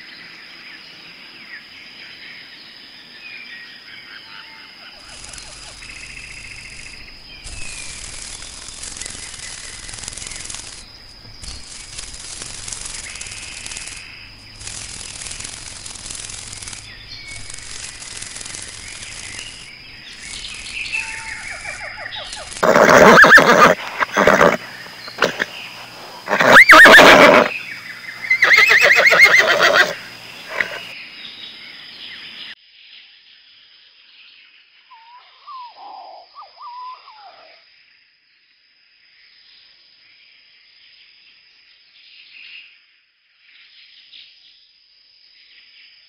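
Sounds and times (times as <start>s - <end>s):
birds chirping: 4.1s - 32.5s
even hiss with low hum: 4.8s - 32.5s.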